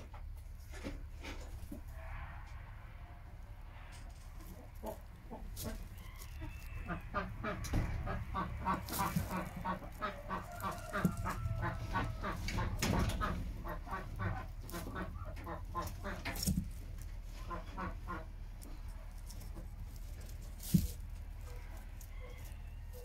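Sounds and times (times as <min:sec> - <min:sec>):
hens clucking: 0:03.2 - 0:23.0.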